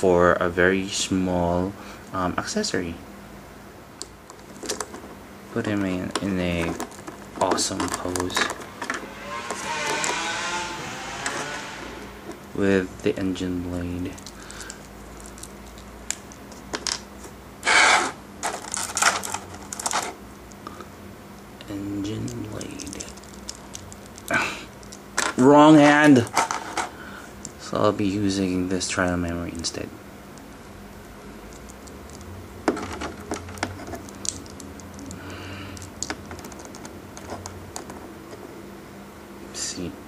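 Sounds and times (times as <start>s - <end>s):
plastic blister tray crackle: 6.0s - 8.9s, 17.8s - 20.2s, 22.1s - 26.9s, 31.5s - 38.0s.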